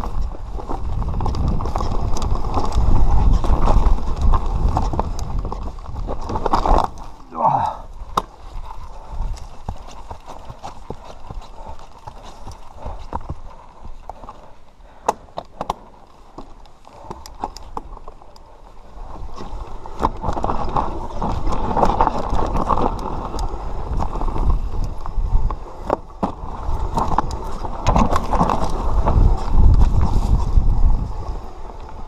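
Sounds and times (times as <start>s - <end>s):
bike rattling and knocking: 0.0s - 7.1s, 19.0s - 32.0s
wind rumbling on microphone: 0.0s - 14.4s, 17.0s - 32.0s
bike tyres crunching over stones: 0.0s - 32.0s.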